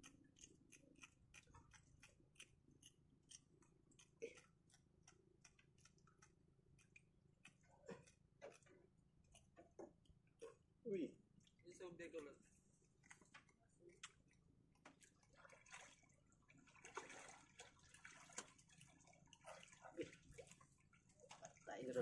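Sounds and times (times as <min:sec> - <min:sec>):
small clicks and rustles of handling: 0:12.2 - 0:15.2.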